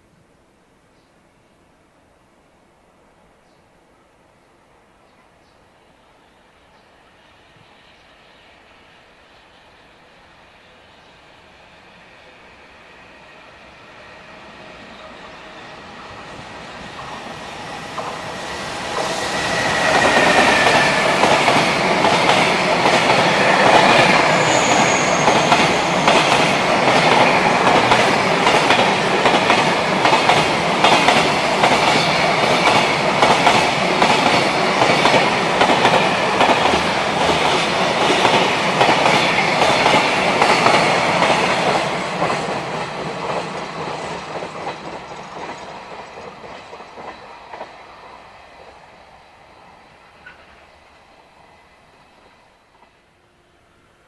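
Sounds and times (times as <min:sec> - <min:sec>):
locomotive whine: 0:08.4 - 0:41.2
train wheels clattering: 0:15.9 - 0:48.2
high squeal: 0:18.7 - 0:21.3, 0:23.2 - 0:26.4.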